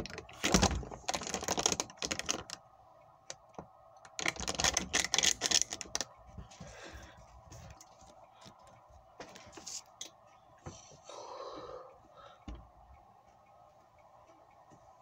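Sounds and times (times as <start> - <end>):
plastic bottle crinkling: 0.0 - 2.6, 4.2 - 6.1
steady hum: 0.0 - 15.0.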